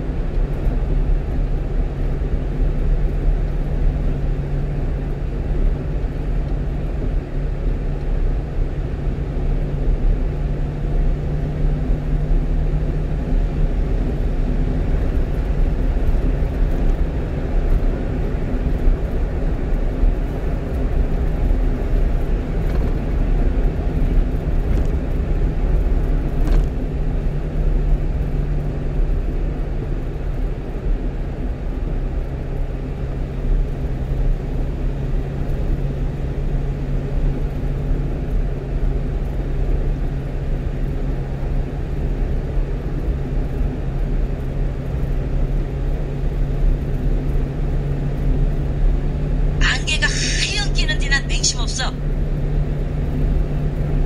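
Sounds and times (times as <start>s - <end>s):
truck engine humming: 49.5s - 52.4s.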